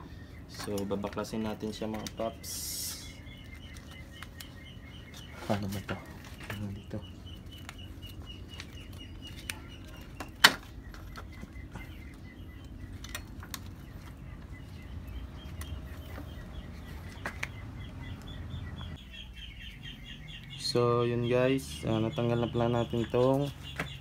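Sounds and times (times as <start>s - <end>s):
birds chirping: 0.0s - 24.0s.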